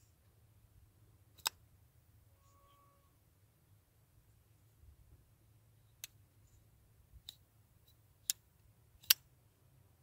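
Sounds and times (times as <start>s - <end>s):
folding knife clicking open and closed: 9.0s - 9.3s.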